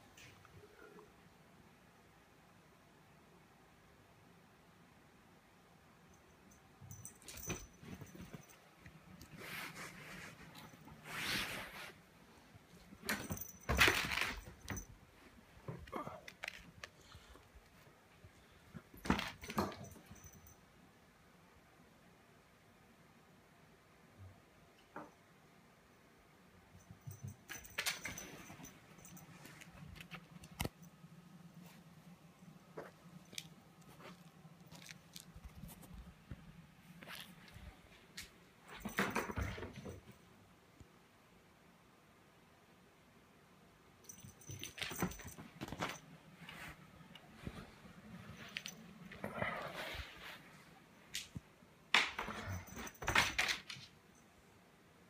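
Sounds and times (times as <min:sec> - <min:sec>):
kitten rustling bedding: 0:09.2 - 0:15.4.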